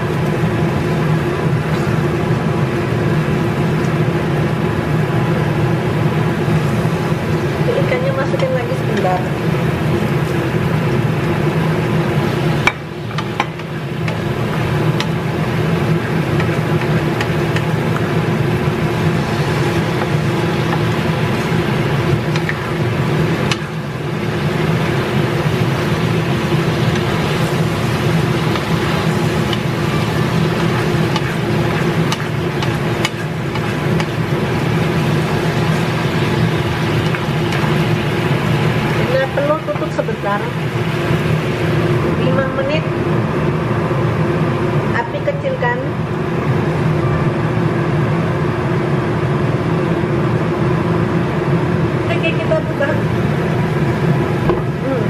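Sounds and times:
fish sizzling in a wok: 0.0s - 42.1s
spatula tapping: 12.6s - 15.2s, 16.3s - 18.1s, 19.9s - 21.0s, 22.1s - 22.7s, 23.4s - 23.9s, 26.5s - 38.0s.

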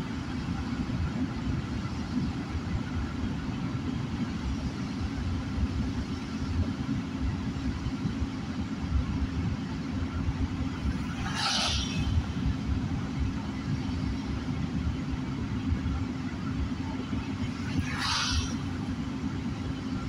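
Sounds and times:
car engine and tyres rumbling: 0.0s - 20.0s
passing vehicle tyre spray hiss: 10.9s - 12.6s, 17.5s - 18.9s.

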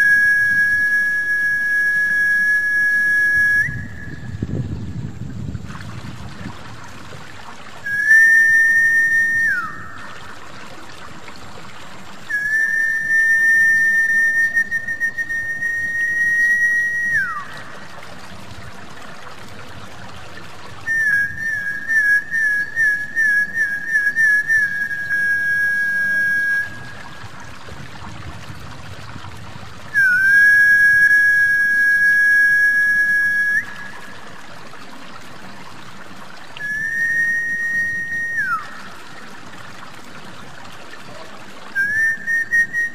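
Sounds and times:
long high whistled notes: 0.0s - 4.5s, 7.8s - 10.3s, 12.3s - 17.6s, 20.9s - 27.1s, 29.9s - 34.1s, 36.6s - 38.9s
trickling water: 0.0s - 42.9s.

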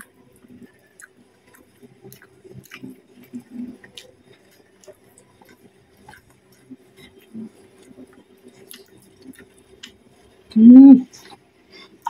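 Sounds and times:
wet mouth clicks chewing: 0.9s - 10.0s
person humming mmm: 10.5s - 11.1s.

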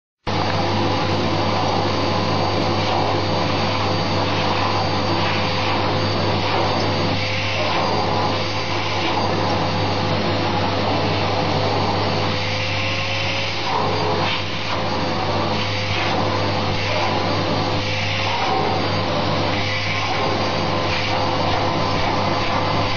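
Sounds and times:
vacuum cleaner whining: 0.3s - 22.9s.

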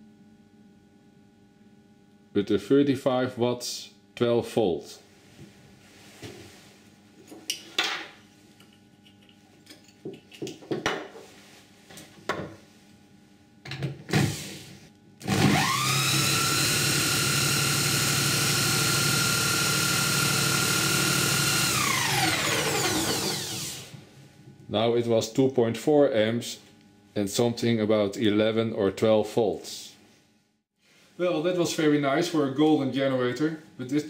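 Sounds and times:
power drill whining: 15.2s - 23.9s.

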